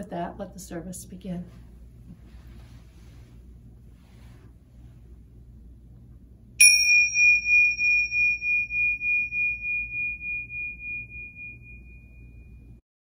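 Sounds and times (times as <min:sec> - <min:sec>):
tingsha cymbals ringing: 0:06.6 - 0:12.8.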